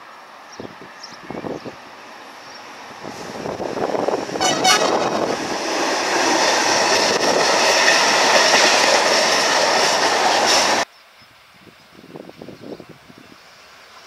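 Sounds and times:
train wagons rumbling past: 0.7s - 10.9s
train horn blasts: 4.4s - 5.3s.

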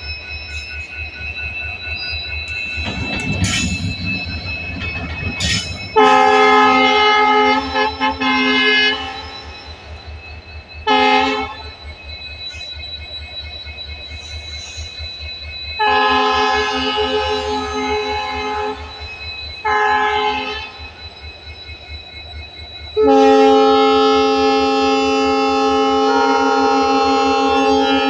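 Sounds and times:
train rumble: 0.0s - 21.7s
train horn blast: 6.0s - 9.2s, 10.9s - 11.6s, 15.8s - 18.8s, 19.6s - 20.7s, 23.0s - 28.0s.

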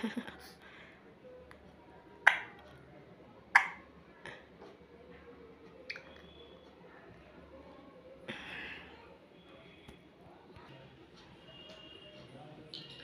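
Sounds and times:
parrot clicking: 2.3s - 2.6s.

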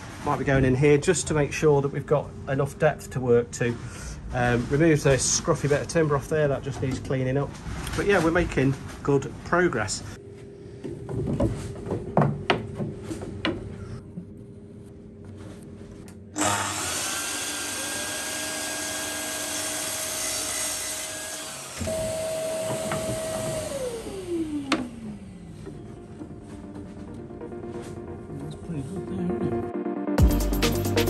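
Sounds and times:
power tool whine: 16.4s - 25.7s.

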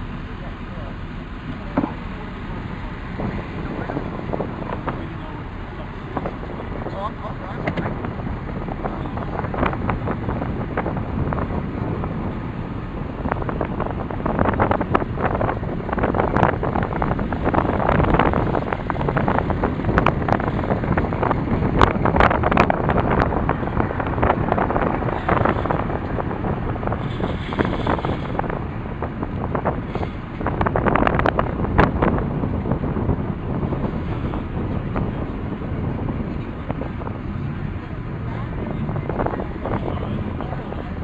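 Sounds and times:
car driving rumble: 0.0s - 41.0s
wind buffeting microphone: 0.0s - 41.0s.

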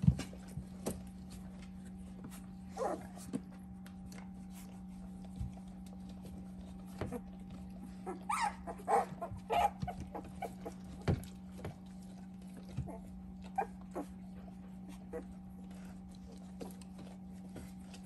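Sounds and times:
puppies squeaking and whimpering: 6.8s - 11.3s, 12.7s - 15.5s.

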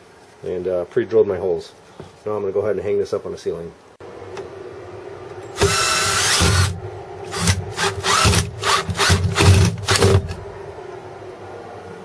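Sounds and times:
cordless drill driving screw: 5.5s - 10.4s.

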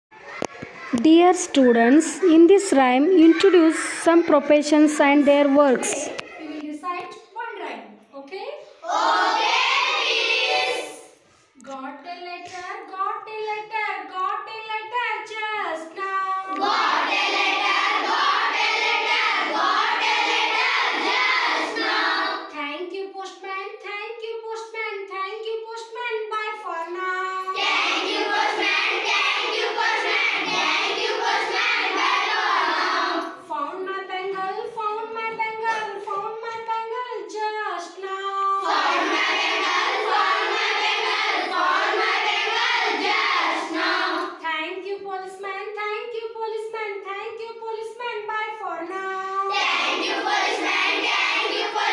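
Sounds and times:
children singing in unison: 8.8s - 11.1s, 16.5s - 22.5s, 27.5s - 33.3s, 38.6s - 44.3s, 49.5s - 51.9s.

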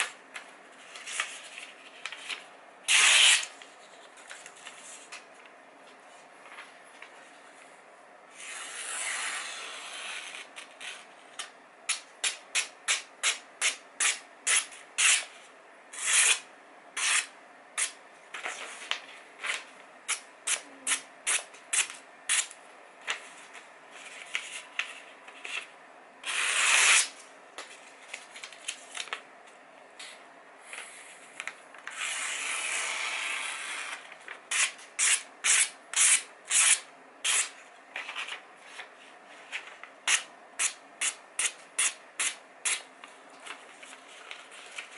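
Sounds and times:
knife slicing paper: 2.9s - 3.5s.

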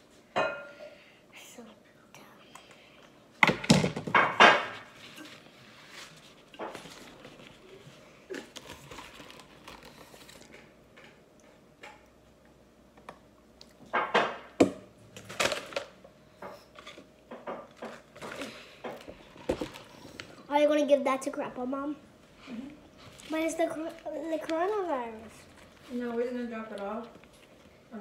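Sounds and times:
food containers knocking and clattering: 3.4s - 4.9s, 13.9s - 19.9s.

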